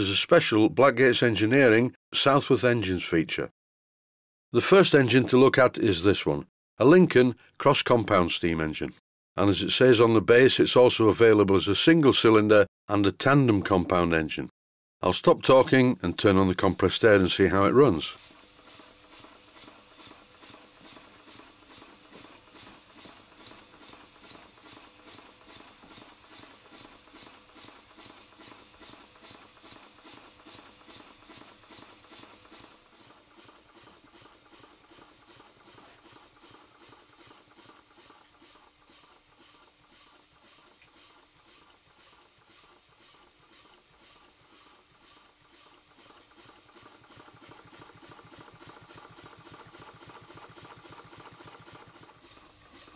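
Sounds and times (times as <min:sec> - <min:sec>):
model steam engine exhaust puffs: 0:16.2 - 0:52.9
steady hiss of air: 0:17.3 - 0:52.9.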